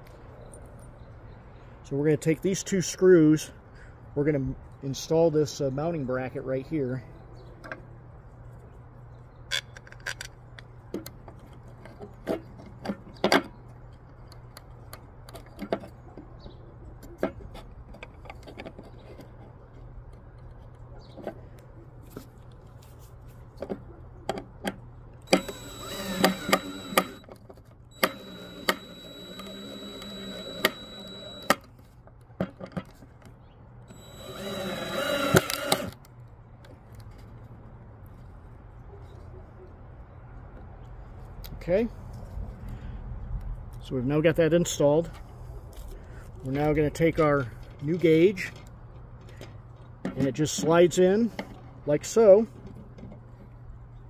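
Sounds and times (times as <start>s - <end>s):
cordless drill driving screws into wood: 25.3s - 27.3s, 27.9s - 31.7s, 33.9s - 36.0s
screws and bracket clicking on wood: 25.3s - 31.7s, 33.9s - 36.0s.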